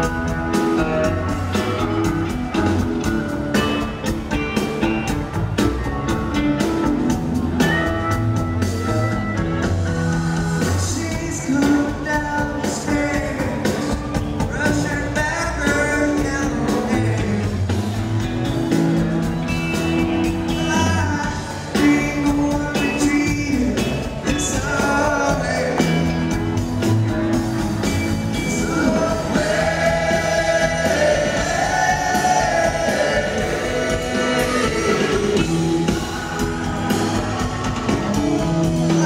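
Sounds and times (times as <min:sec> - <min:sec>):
live rock band playing: 0:00.0 - 0:39.0
man singing lead: 0:10.6 - 0:17.8, 0:20.5 - 0:26.4, 0:28.3 - 0:39.0.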